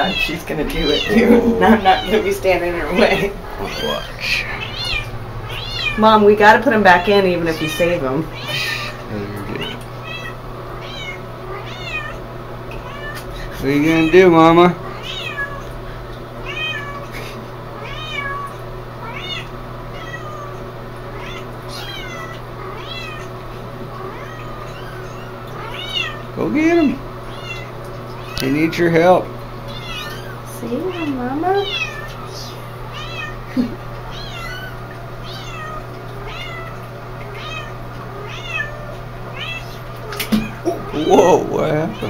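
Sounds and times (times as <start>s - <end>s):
kitten mewing: 0.0s - 2.3s, 3.0s - 6.0s, 8.3s - 12.2s, 16.4s - 23.4s
kittens mewing: 0.0s - 6.0s, 8.3s - 13.6s, 14.8s - 26.4s, 27.2s - 28.4s, 29.6s - 42.0s
steady low hum: 0.0s - 42.0s.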